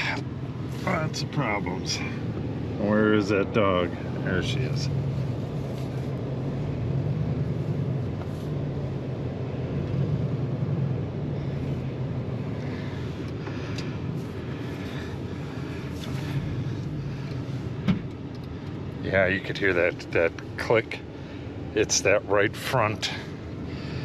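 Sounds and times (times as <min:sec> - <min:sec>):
truck engine and road noise: 0:00.0 - 0:24.0.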